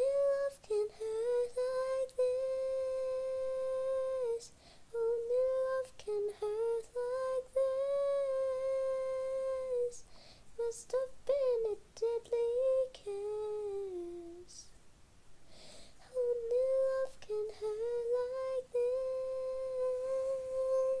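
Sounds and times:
person humming a tune: 0.0s - 10.0s, 16.1s - 21.0s
person breathing: 4.5s - 4.9s, 10.0s - 10.6s, 15.4s - 16.0s.

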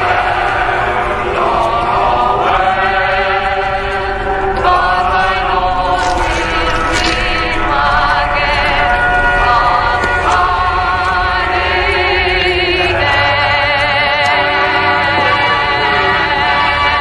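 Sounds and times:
choir chanting held notes: 0.0s - 17.0s
low drone: 0.0s - 17.0s.

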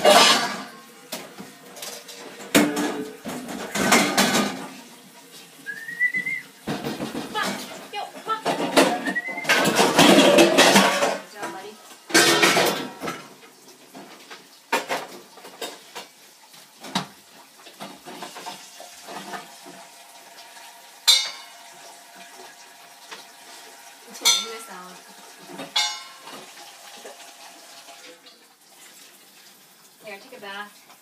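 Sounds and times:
metal bowls clanking in sink: 0.0s - 4.9s, 6.0s - 16.1s, 21.0s - 22.3s, 24.1s - 27.1s.

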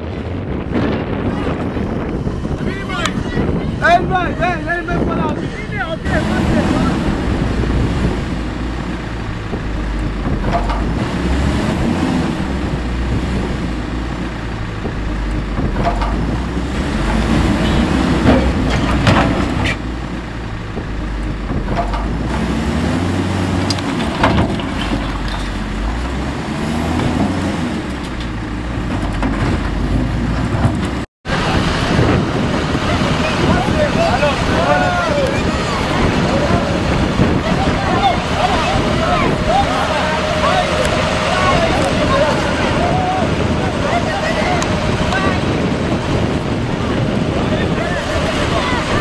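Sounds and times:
heavy diesel engines revving: 0.0s - 49.0s
sharp knocks and clanks: 9.4s - 19.9s, 20.7s - 22.8s, 23.5s - 26.2s, 26.9s - 31.1s.

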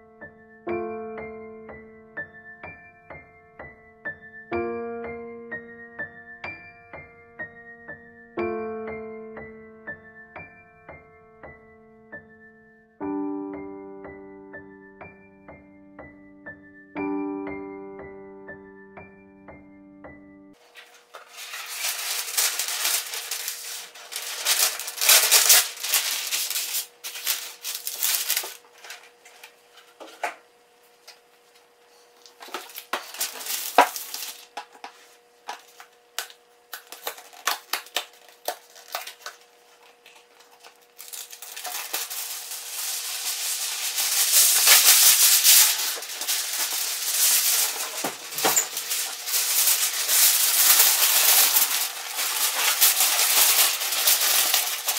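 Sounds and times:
foil crumpled with loud crackles: 20.6s - 29.6s, 32.2s - 34.8s, 36.7s - 54.9s
foil rustling and crinkling: 20.6s - 30.2s, 32.1s - 35.9s, 36.7s - 54.9s.

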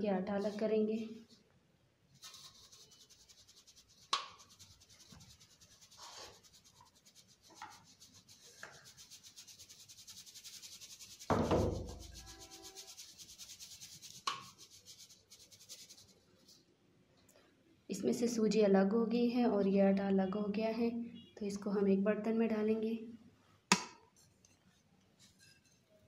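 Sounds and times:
flour sifting through sieve swishing: 2.2s - 16.6s.

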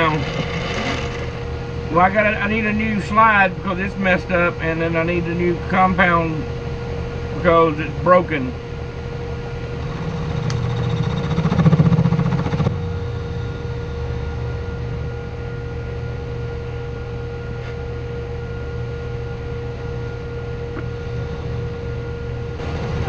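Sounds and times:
rough grinding noise: 0.0s - 2.3s, 9.5s - 12.8s
electric motor humming: 0.0s - 3.8s, 6.6s - 23.0s.

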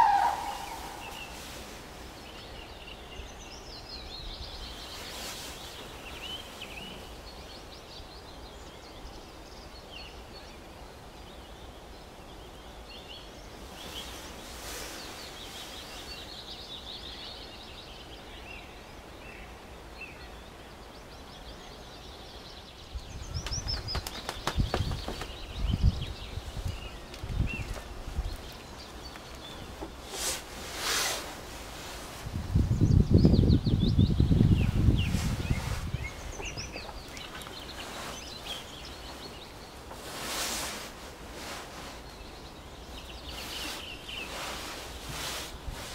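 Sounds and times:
birds chirping: 0.0s - 45.9s
outdoor background noise: 0.0s - 45.9s
low thumps and knocks: 23.4s - 25.8s.

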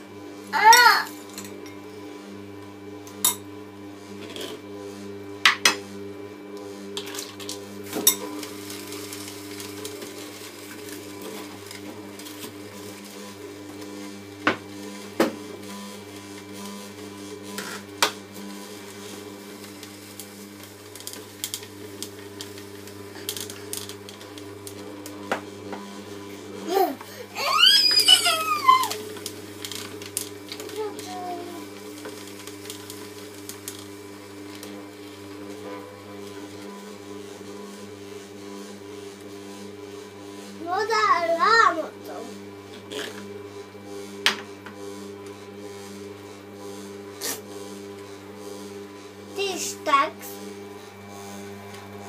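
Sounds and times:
juicer motor humming: 0.0s - 52.0s.

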